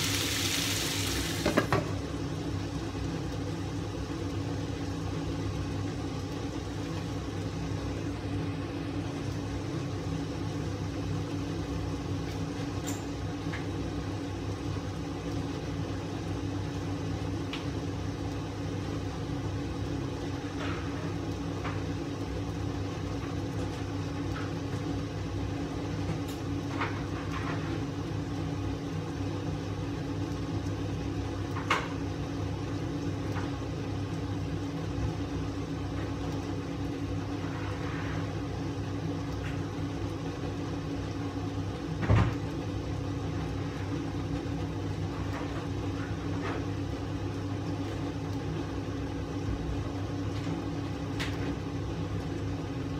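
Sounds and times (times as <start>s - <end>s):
food crackling and popping in wok: 0.0s - 2.2s
kitchen appliance hum: 0.0s - 52.9s.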